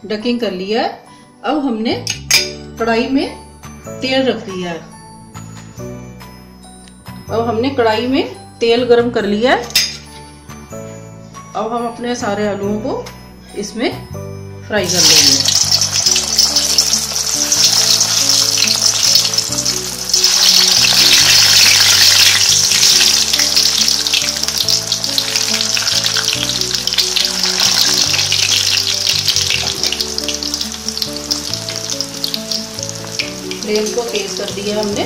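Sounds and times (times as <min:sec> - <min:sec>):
potatoes deep-frying in oil: 0:14.8 - 0:35.0.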